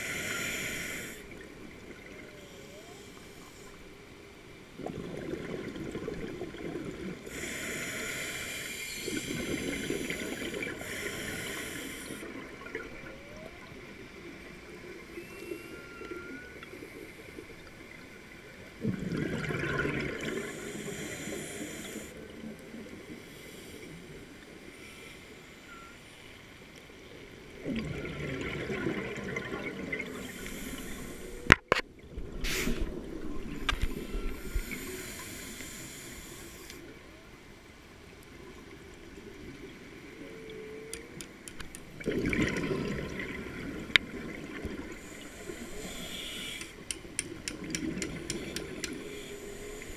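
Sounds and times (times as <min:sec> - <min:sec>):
regulator hiss: 0:00.0 - 0:01.3, 0:07.3 - 0:12.2, 0:30.2 - 0:31.5, 0:34.0 - 0:36.8, 0:45.0 - 0:46.9
exhaled bubbles: 0:18.8 - 0:20.5, 0:27.6 - 0:30.4, 0:41.9 - 0:45.1.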